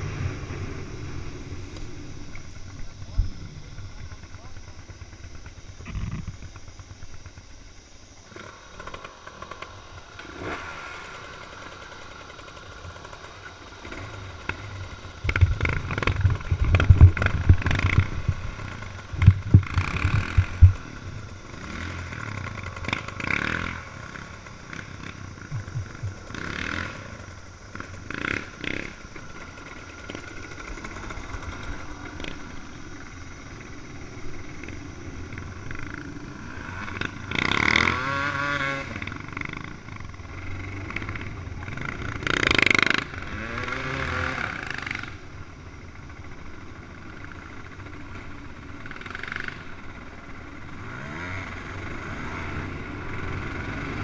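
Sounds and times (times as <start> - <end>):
dirt bike engines running: 0.0 - 54.0
engine revving: 8.3 - 45.2, 48.8 - 54.0
loud uneven low thumps: 25.5 - 26.3.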